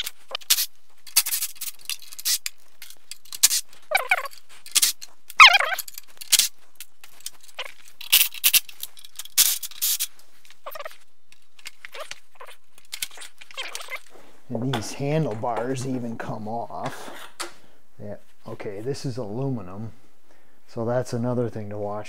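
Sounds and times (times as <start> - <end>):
metal and plastic clanks and rattles: 0.0 - 10.1
short squeaks: 3.8 - 5.9, 10.6 - 11.0, 11.7 - 14.1.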